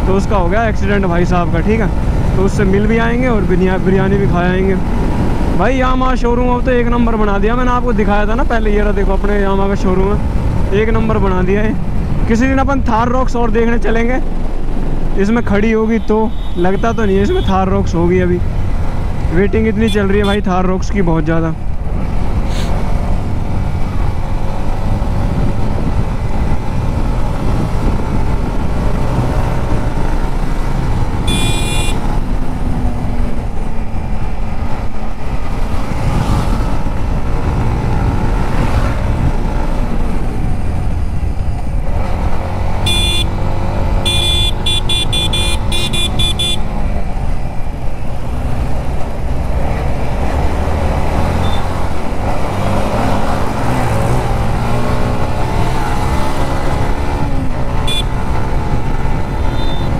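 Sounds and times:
wind rush: 0:21.6 - 0:42.5
motorcycle engine running: 0:29.9 - 0:32.6
horn beeps: 0:31.2 - 0:32.0, 0:42.9 - 0:43.3, 0:44.0 - 0:46.7, 0:51.4 - 0:51.8, 0:57.8 - 0:58.1, 0:59.4 - 0:59.9.

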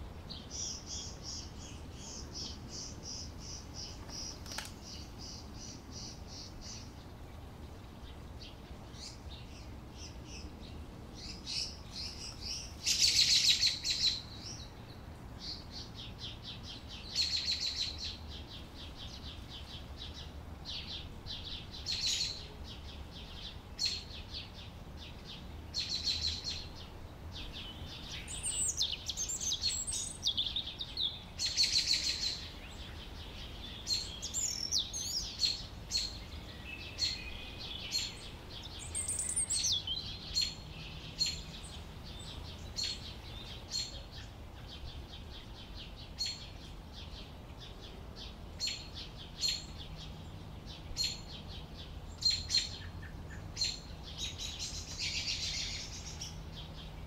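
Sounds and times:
canaries chirping: 0:33.1 - 0:43.9.

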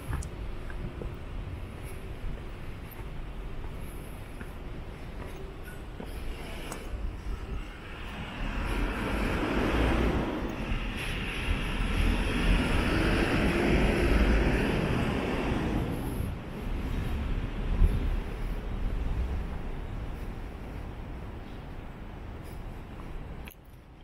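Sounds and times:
distant vehicle passing: 0:07.8 - 0:16.2.

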